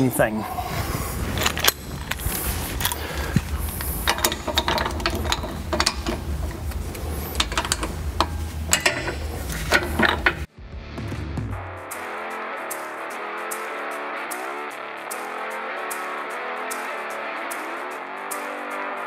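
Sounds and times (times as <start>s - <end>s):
hand ratchet clicking: 1.4s - 10.5s
tool clinking against metal: 1.4s - 10.5s.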